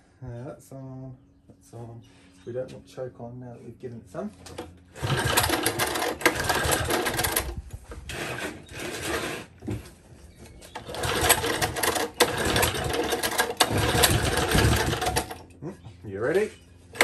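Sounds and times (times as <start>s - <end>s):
small engine recoil starter pulls: 4.5s - 9.6s, 10.7s - 15.4s.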